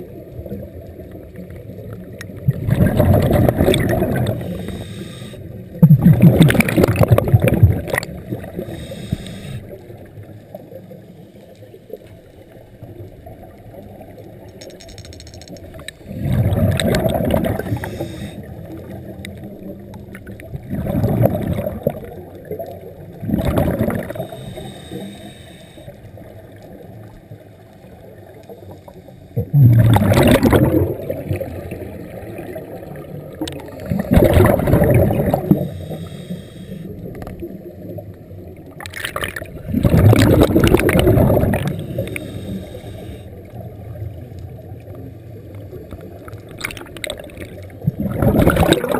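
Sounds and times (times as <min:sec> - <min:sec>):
faint water hiss: 0:00.0 - 0:05.8, 0:06.6 - 0:29.9, 0:30.7 - 0:38.9, 0:39.6 - 0:46.6
regulator bubbling exhale: 0:02.4 - 0:09.8, 0:16.0 - 0:18.9, 0:20.6 - 0:22.1, 0:23.2 - 0:25.9, 0:29.4 - 0:32.6, 0:33.4 - 0:37.4, 0:39.5 - 0:43.5, 0:46.6 - 0:48.9.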